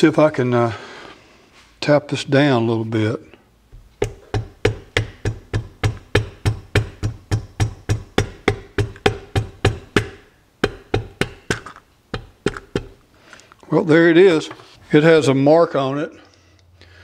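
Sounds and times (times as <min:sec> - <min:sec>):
tool handle tapping: 0:03.7 - 0:13.0.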